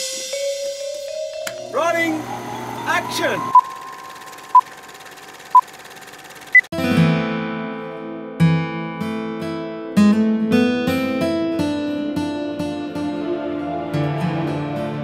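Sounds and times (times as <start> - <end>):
strummed acoustic guitar: 6.8 - 13.1.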